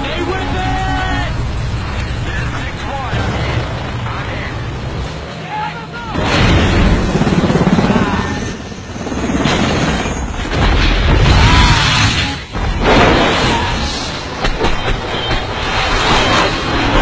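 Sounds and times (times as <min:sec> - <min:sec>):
film music score: 0:00.0 - 0:17.0
explosions booming: 0:06.1 - 0:07.4, 0:09.4 - 0:17.0.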